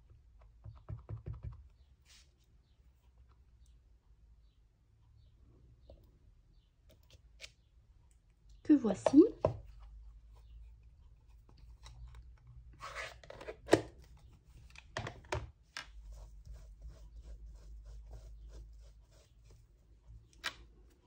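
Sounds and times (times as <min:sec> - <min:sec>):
clicks and taps: 0:00.0 - 0:01.8.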